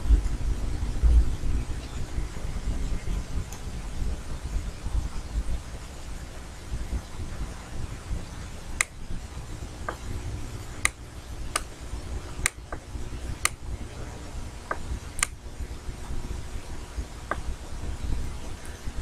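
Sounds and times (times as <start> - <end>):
low rumble of room noise: 0.0 - 19.0
computer mouse clicking: 14.7 - 15.4.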